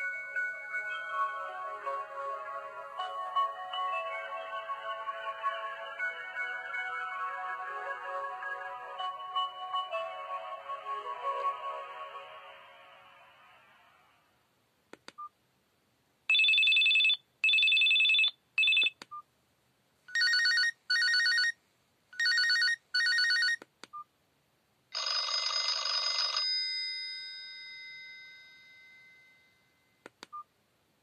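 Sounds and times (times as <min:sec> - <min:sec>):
trilling electronic ringtone: 0:00.0 - 0:12.6, 0:16.3 - 0:18.9, 0:25.0 - 0:26.6
chiming ringtone: 0:00.0 - 0:13.0, 0:16.3 - 0:18.9, 0:25.0 - 0:30.0.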